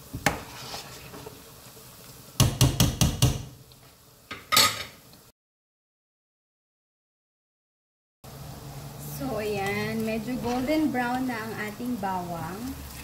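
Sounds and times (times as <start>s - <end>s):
garlic frying in oil: 0.0s - 5.3s, 8.3s - 13.0s
utensil knocking against a pot: 2.4s - 3.5s.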